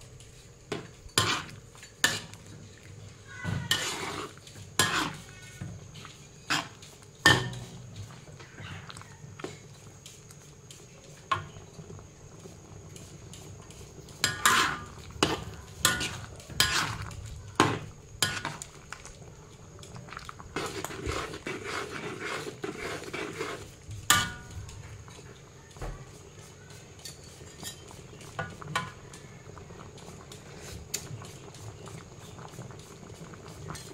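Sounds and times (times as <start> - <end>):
metal spatula scraping wok: 0.4 - 2.5, 3.4 - 8.0, 14.2 - 18.7, 20.6 - 24.5.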